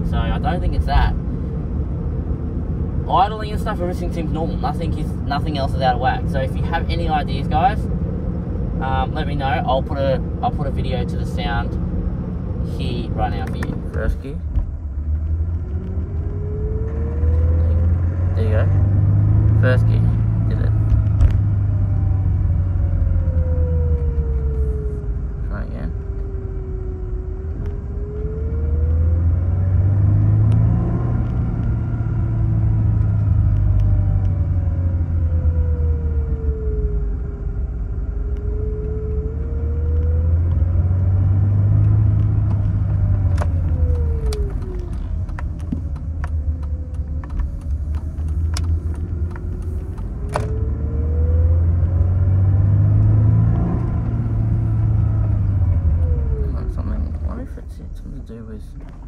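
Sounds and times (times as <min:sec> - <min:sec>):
car engine accelerating: 0:00.0 - 0:59.0
sharp clicks: 0:41.8 - 0:50.6.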